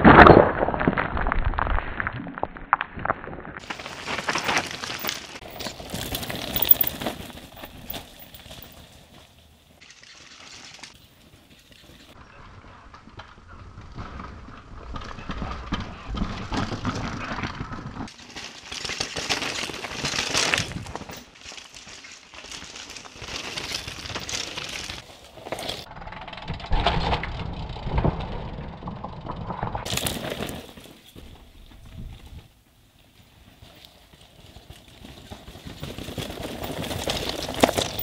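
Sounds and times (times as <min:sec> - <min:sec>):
tyres crunching on gravel: 0:03.6 - 0:09.6, 0:33.5 - 0:38.0
bikes rattling and knocking: 0:03.6 - 0:38.0.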